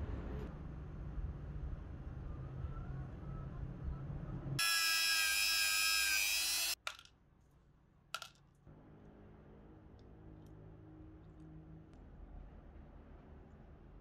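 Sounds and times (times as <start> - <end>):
steel nuts dropping into plastic cap: 6.8 - 7.1, 8.2 - 8.4.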